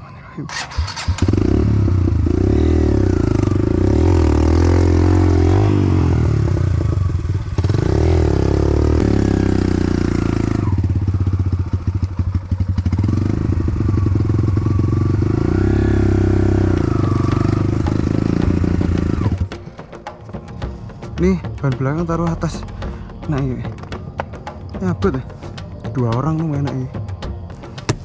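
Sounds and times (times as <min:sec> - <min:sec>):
dirt bike engine revving: 0:00.5 - 0:19.5.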